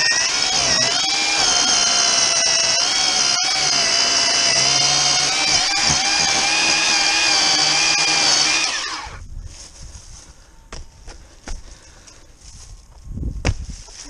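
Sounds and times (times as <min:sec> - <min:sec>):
electric chainsaw cutting log: 0:00.0 - 0:09.2.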